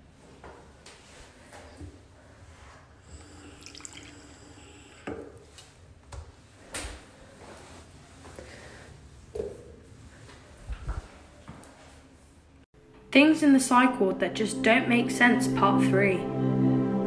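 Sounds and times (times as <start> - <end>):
water running into basin: 3.1 - 5.4.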